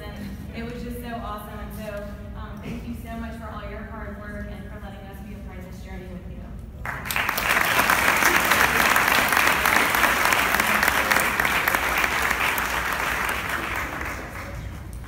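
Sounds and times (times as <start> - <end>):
audience applauding: 6.8 - 15.0.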